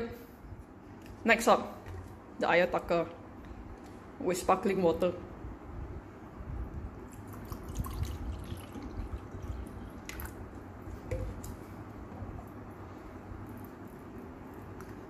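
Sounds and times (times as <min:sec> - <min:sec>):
tea pouring over ice: 0:07.1 - 0:10.4
liquid dripping: 0:07.1 - 0:12.6.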